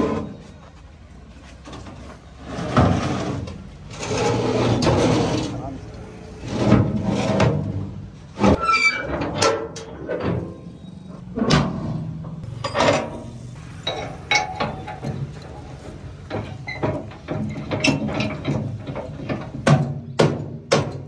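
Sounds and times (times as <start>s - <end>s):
metallic clanks and knocks: 6.5s - 21.0s.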